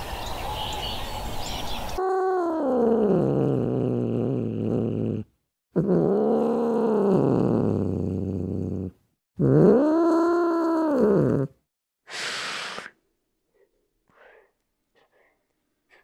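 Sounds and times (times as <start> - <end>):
cat hissing: 12.1 - 13.0.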